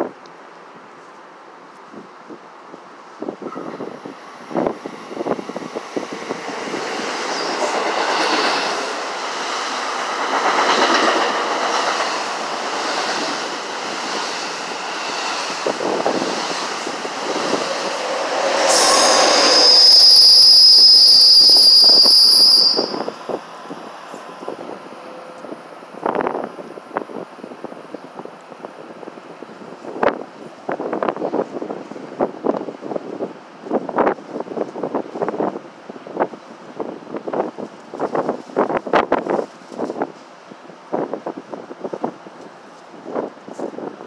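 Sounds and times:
train rushing past: 0:03.5 - 0:26.5
high-pitched wheel squeal: 0:17.5 - 0:23.1.

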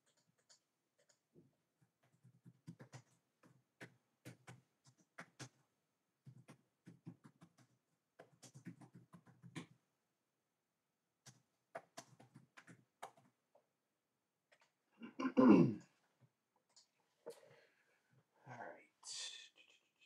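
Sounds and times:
faint clicks and taps: 0:00.0 - 0:05.6, 0:06.2 - 0:09.8, 0:11.2 - 0:13.7, 0:14.5 - 0:14.8, 0:16.2 - 0:18.2.

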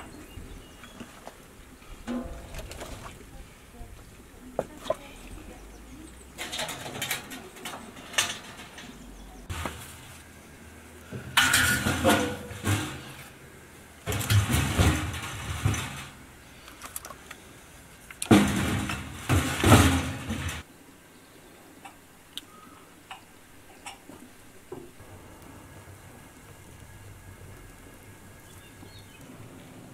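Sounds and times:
logs clattering against metal stove: 0:02.0 - 0:03.1, 0:06.4 - 0:10.2, 0:11.0 - 0:13.4, 0:14.0 - 0:16.3, 0:18.1 - 0:20.7.

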